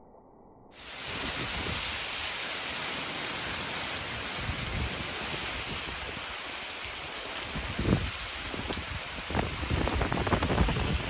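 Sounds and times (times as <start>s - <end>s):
rain hissing: 0.8s - 11.0s
thunder rumbling: 7.6s - 11.0s.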